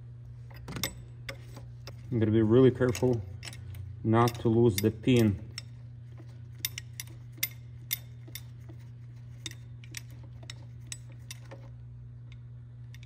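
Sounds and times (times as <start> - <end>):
low hum: 0.0 - 13.0
ratchet clicking: 2.7 - 11.7.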